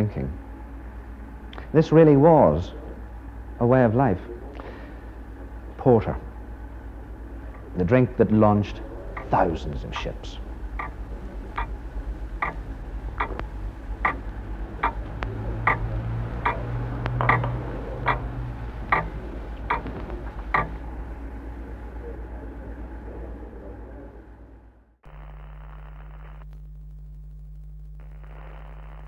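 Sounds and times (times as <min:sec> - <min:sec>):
low steady hum: 0:00.0 - 0:29.0
clock ticking: 0:10.8 - 0:11.8, 0:12.4 - 0:20.8.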